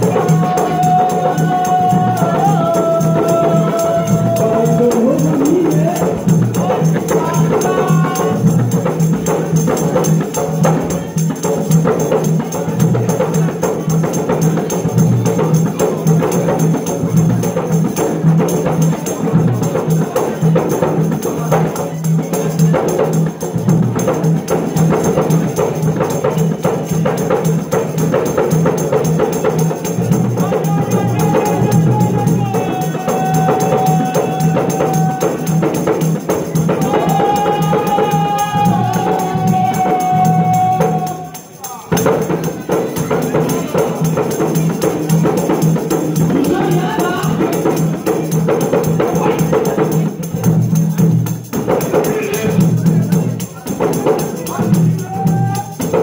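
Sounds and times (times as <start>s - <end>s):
frame drums beaten fast: 0.0s - 56.0s.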